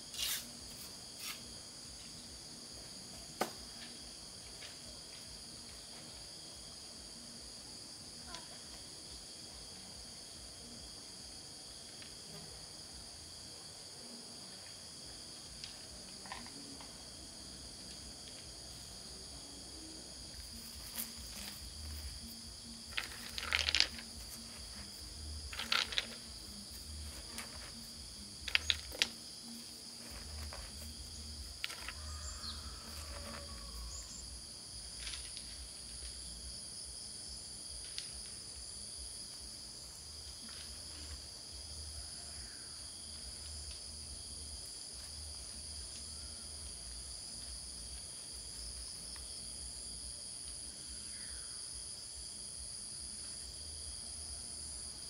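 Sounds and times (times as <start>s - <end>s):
crickets and insects chirping: 0.0s - 55.0s
pebbles clicking together: 22.8s - 29.2s, 30.0s - 32.0s.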